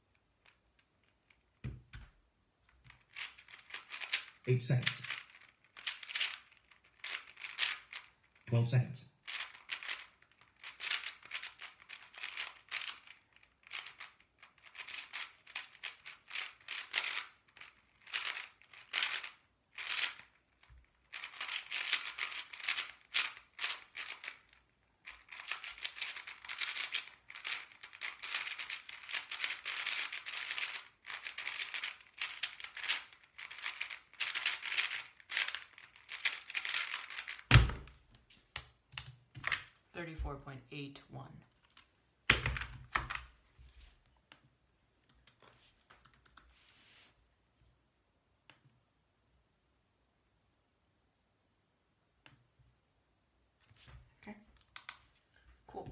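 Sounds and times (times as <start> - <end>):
speedcube layers clicking: 2.7 - 8.4, 9.2 - 37.9.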